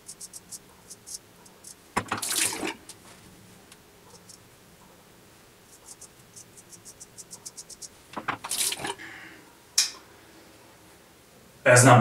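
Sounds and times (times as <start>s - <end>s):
razor scraping stubble: 0.0s - 3.1s, 4.1s - 4.4s, 5.7s - 8.8s.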